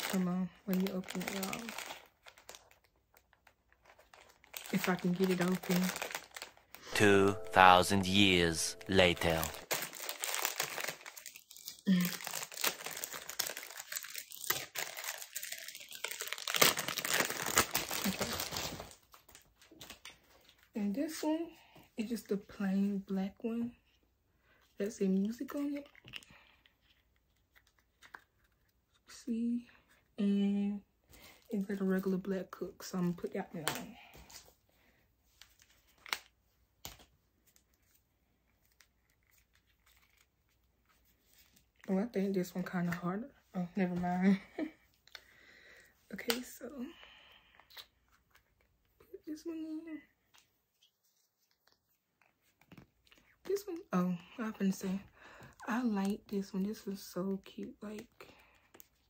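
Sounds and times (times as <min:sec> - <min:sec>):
packaging crinkling and rustling: 0:00.0 - 0:06.7, 0:09.3 - 0:20.7, 0:35.4 - 0:41.8.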